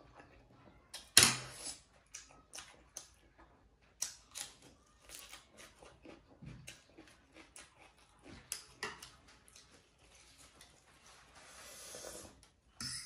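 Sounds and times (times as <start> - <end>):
crunching lettuce: 4.1 - 11.7
slurping noodles: 11.4 - 12.4.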